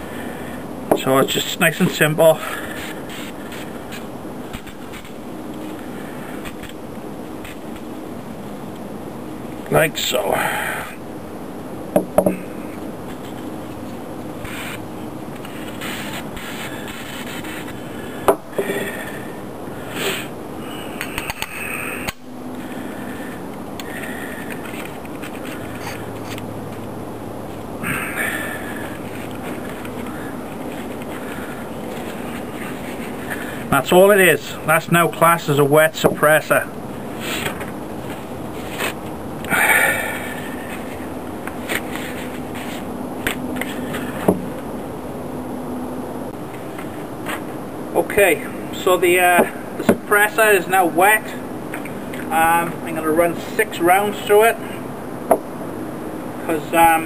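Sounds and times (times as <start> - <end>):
steady hiss: 0.0 - 57.0
disposable gloves rustling: 28.7 - 33.6.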